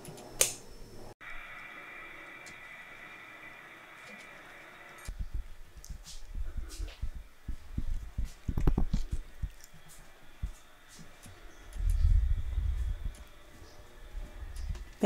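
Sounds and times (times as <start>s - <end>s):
microphone handling thumps and rubbing: 5.1s - 9.5s
low rumble: 5.1s - 9.6s, 11.6s - 15.0s.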